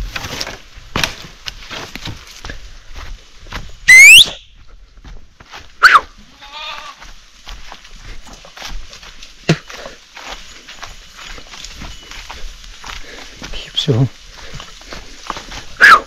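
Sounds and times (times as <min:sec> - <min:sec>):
twigs rustling and snapping: 0:00.0 - 0:02.5
person whistling loudly: 0:03.9 - 0:04.5
sheep bleating: 0:05.8 - 0:07.1.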